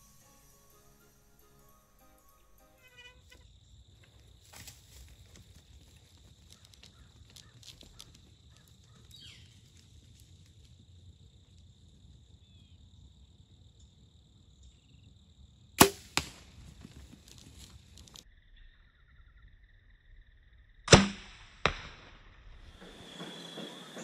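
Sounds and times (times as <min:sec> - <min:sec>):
arrow striking smack: 0:15.8 - 0:16.4, 0:20.9 - 0:22.1.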